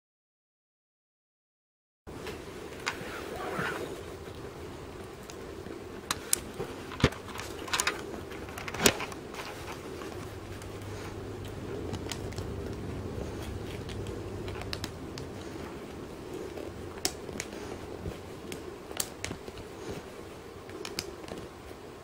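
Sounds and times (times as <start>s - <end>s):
plastic toy parts clicking: 6.1s - 9.2s.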